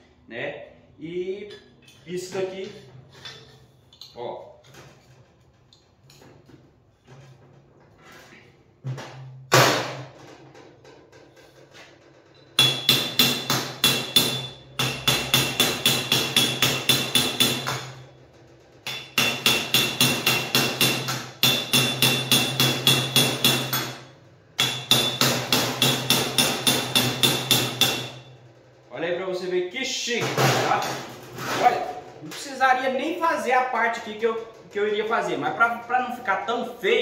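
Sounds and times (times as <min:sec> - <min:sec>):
hammer striking metal tube: 0:12.6 - 0:18.1, 0:18.8 - 0:28.3.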